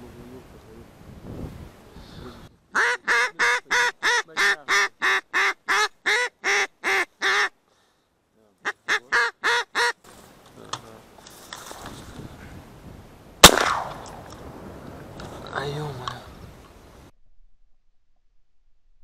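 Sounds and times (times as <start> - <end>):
duck quacking: 2.8 - 7.6, 8.6 - 10.0
shotgun shot: 13.4 - 14.4.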